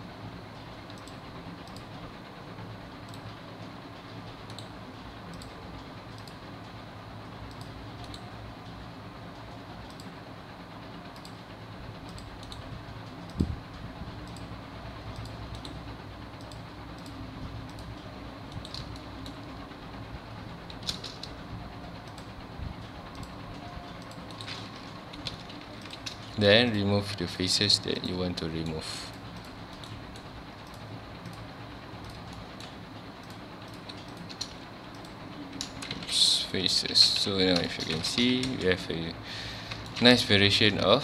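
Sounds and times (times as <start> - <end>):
steady low hum: 0.0 - 41.0
computer mouse clicking: 0.8 - 1.9, 3.0 - 3.3, 4.4 - 4.7, 5.3 - 6.4, 7.4 - 8.3, 9.4 - 10.1, 11.1 - 11.4, 12.0 - 13.6, 14.2 - 14.5, 15.1 - 19.5, 20.6 - 21.4, 22.0 - 22.3, 23.1 - 26.4, 28.6 - 36.1.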